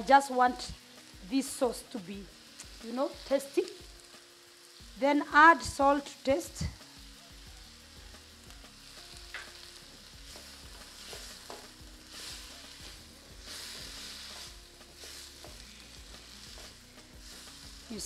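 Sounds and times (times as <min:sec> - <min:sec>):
sauce sizzling in a pan: 0:00.0 - 0:18.0.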